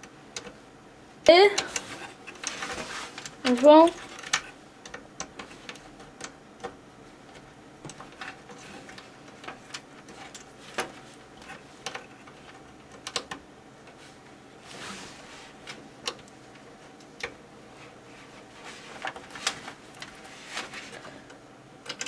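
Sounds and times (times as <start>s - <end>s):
plastic connectors clicking onto pins: 1.5s - 13.4s, 21.3s - 22.0s.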